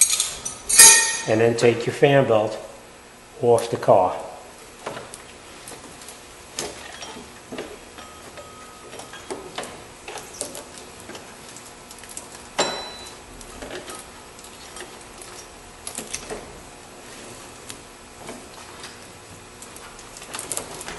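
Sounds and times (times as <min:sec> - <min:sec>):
sharp metallic clank: 0:00.0 - 0:01.4.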